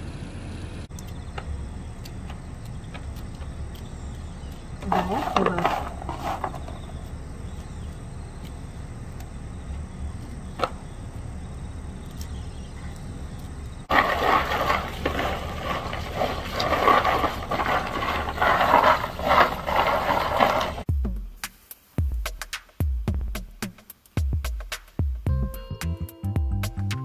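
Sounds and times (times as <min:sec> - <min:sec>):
peanuts clattering on mesh tray: 0:04.7 - 0:07.1, 0:13.9 - 0:20.9.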